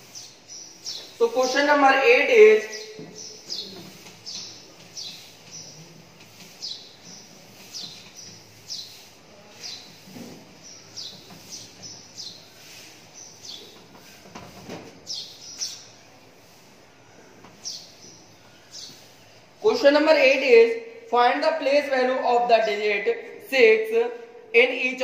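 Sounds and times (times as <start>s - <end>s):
duster squeaking on whiteboard: 2.7s - 15.8s.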